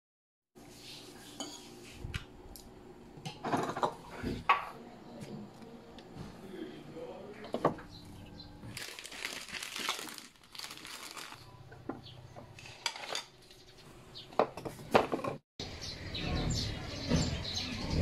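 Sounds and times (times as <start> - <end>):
plastic wrappers crinkling: 8.6 - 11.6.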